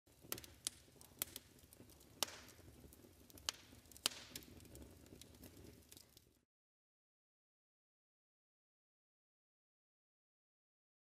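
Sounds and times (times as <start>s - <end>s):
wood fire crackling: 0.1s - 6.5s.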